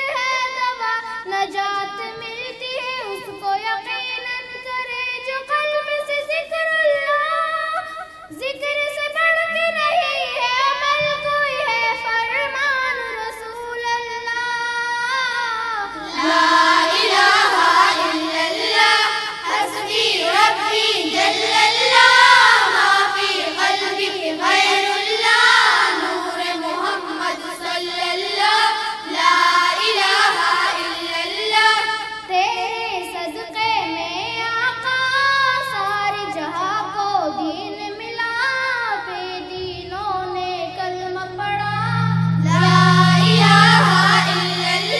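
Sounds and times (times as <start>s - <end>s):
children singing a hymn: 10.3s - 44.9s.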